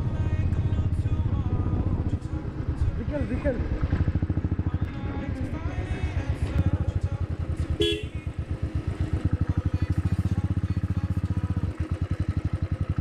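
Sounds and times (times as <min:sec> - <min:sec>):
motorcycle engine thumping: 0:00.0 - 0:13.0
short horn toot: 0:07.8 - 0:08.2.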